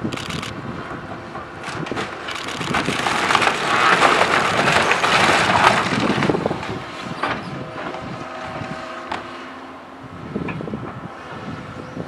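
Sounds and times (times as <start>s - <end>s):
excavator engine running: 0.0s - 11.5s
debris falling: 1.6s - 6.8s
walls cracking and crashing: 1.6s - 6.8s.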